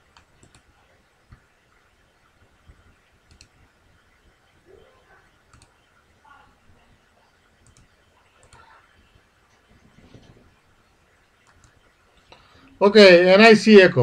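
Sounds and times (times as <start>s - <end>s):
computer mouse clicks: 0.0s - 0.7s, 2.6s - 3.6s, 5.4s - 5.9s, 7.5s - 8.8s, 11.4s - 12.4s.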